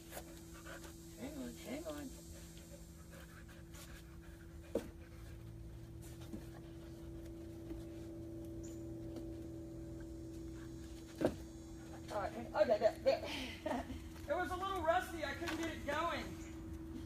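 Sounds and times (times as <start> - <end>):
low electrical hum: 0.0 - 17.0
higher electrical tone: 6.6 - 17.0.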